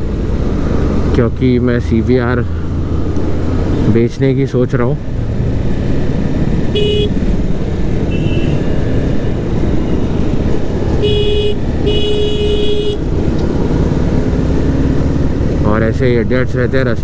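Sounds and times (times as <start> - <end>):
motorcycle engine rumble: 0.0 - 17.0
wind noise: 5.0 - 15.6
vehicle horn honking: 6.7 - 7.2, 8.1 - 8.9, 11.0 - 13.1.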